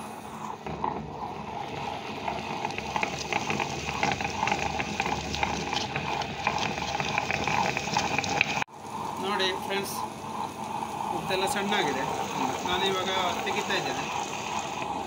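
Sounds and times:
wet grinder churning batter: 0.0 - 15.0.

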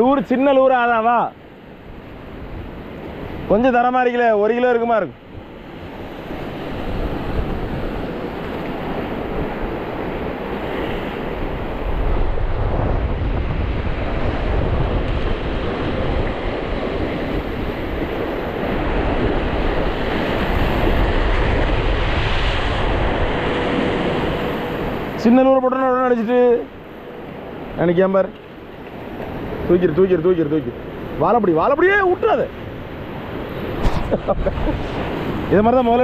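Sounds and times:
sea surf washing on shore: 0.0 - 36.0
wind buffeting microphone: 5.2 - 25.2, 31.9 - 36.0.

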